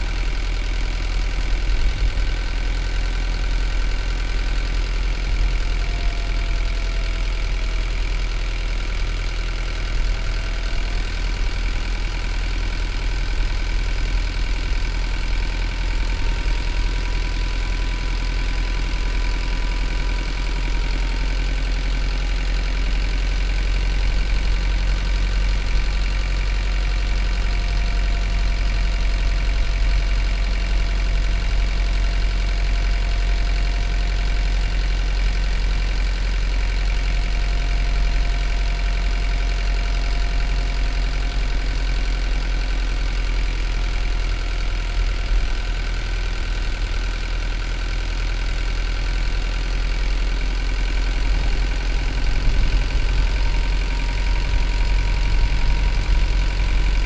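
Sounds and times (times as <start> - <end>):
diesel engine rumbling: 0.0 - 57.0
faint engine whine: 36.6 - 57.0.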